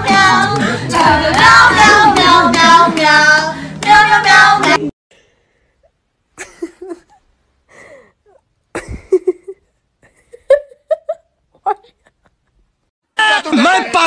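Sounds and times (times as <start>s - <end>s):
singing with music: 0.0s - 4.9s.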